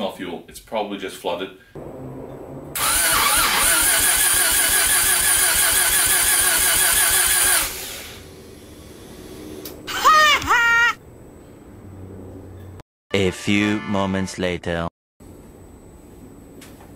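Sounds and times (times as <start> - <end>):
engine cranking on starter: 2.8 - 8.2.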